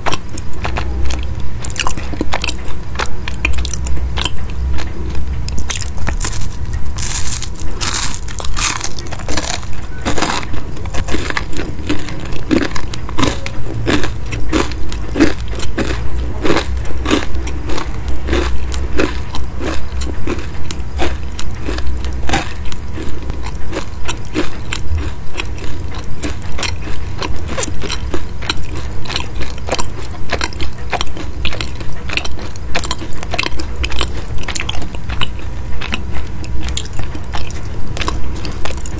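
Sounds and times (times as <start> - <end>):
crunchy chewing: 0.0 - 38.9.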